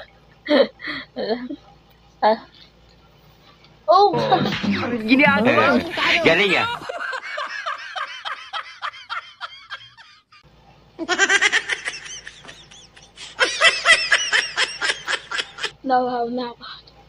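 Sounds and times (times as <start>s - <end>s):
man laughing hard: 11.1s - 15.7s.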